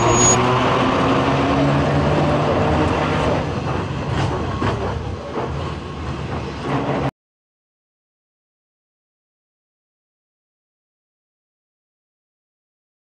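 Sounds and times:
electric tram motor hum: 0.0s - 7.1s
tram wheels clicking: 3.2s - 7.1s.

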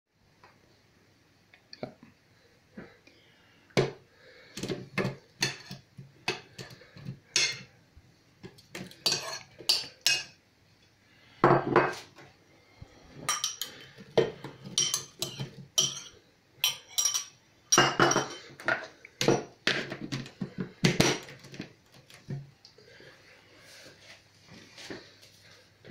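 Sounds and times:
metal spoon clinking on china plate: 9.0s - 10.3s, 14.7s - 18.4s.

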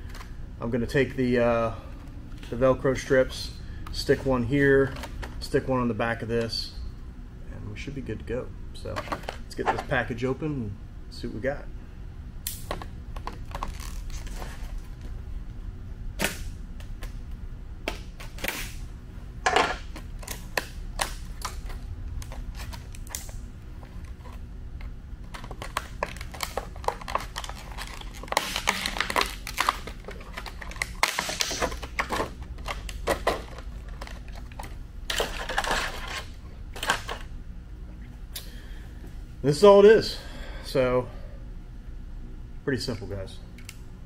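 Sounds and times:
steady low hum: 0.0s - 44.0s
plastic packaging crinkling: 25.3s - 37.2s.

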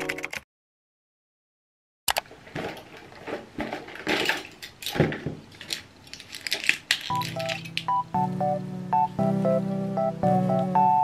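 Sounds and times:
blister pack crinkling: 2.5s - 8.1s
soft background music: 7.1s - 11.0s.

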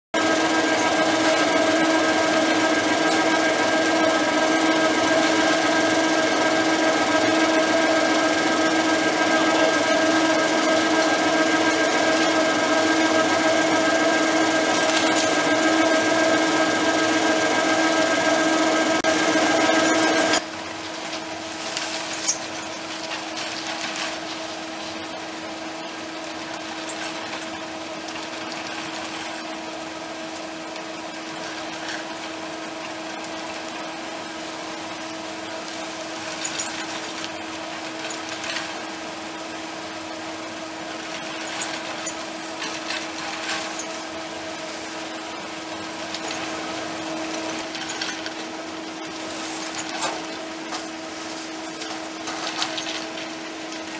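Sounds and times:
ski lift mechanical hum: 0.2s - 53.9s
hangers rattling and clicking: 8.2s - 16.3s, 21.1s - 25.0s, 36.0s - 38.8s, 41.0s - 44.1s, 46.0s - 53.9s.

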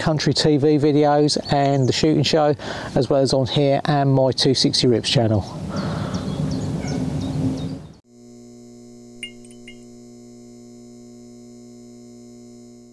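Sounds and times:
electrical hum: 5.4s - 12.9s.

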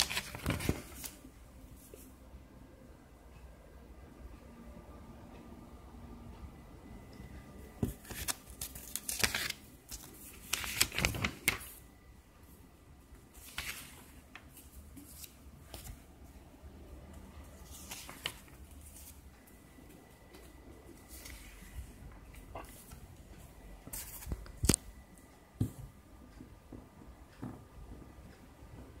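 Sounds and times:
paper pages rustling and turning: 0.0s - 2.1s, 7.8s - 11.8s, 13.2s - 16.1s, 17.5s - 23.0s, 23.8s - 24.8s.

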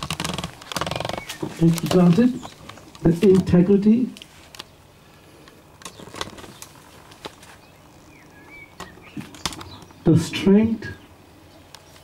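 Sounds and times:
faint chirp: 7.5s - 10.1s.

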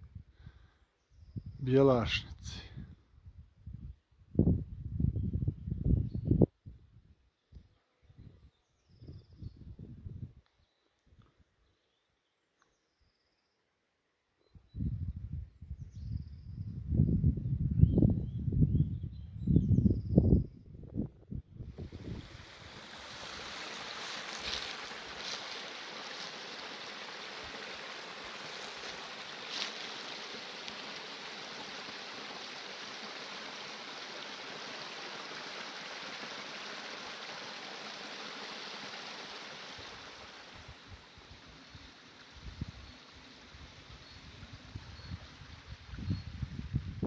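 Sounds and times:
stream running over stones: 21.7s - 46.8s.

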